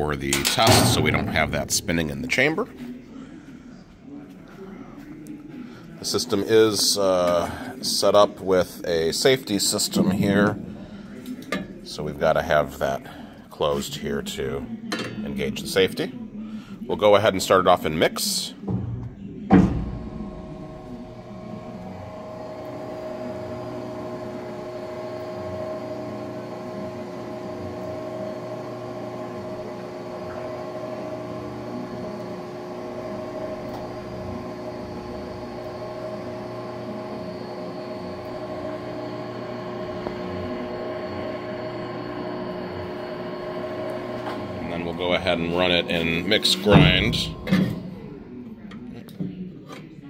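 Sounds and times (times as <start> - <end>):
mixer motor humming: 20.0 - 48.0.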